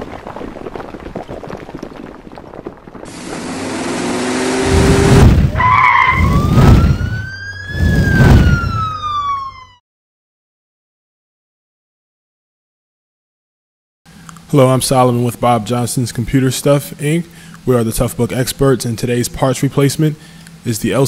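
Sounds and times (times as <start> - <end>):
police siren wailing: 3.1 - 9.8
heavy explosion booms: 4.6 - 5.6, 6.2 - 8.8.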